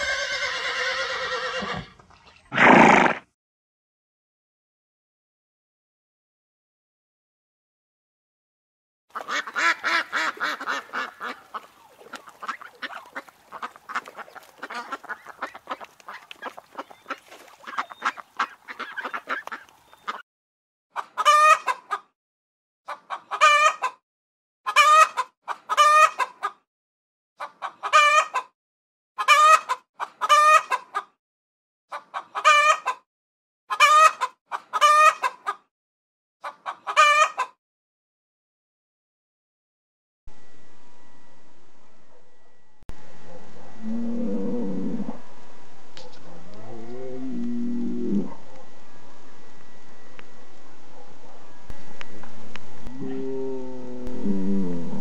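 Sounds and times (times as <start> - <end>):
chickens clucking: 9.1 - 20.2, 21.0 - 22.1, 22.9 - 24.0, 24.7 - 26.6, 27.4 - 28.5, 29.2 - 31.1, 31.9 - 33.0, 33.7 - 35.6, 36.4 - 37.6.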